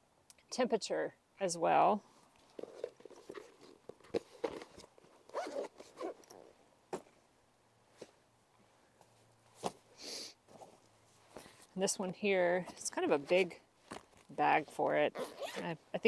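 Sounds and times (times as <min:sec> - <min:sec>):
zipper on bag being pulled: 0:05.3 - 0:06.5, 0:15.1 - 0:15.7
clicks and knocks of gear handled: 0:13.8 - 0:15.0.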